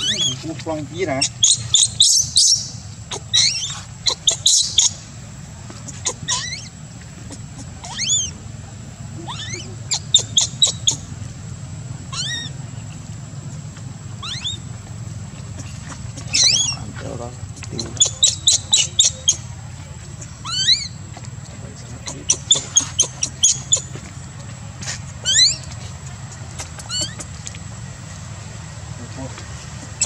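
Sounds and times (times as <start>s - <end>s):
baby monkey crying: 0.0s - 5.0s, 5.8s - 8.4s, 9.1s - 11.1s, 12.0s - 12.6s, 14.1s - 14.7s, 15.5s - 19.5s, 20.2s - 21.0s, 22.0s - 24.1s, 25.2s - 25.7s, 26.6s - 27.4s.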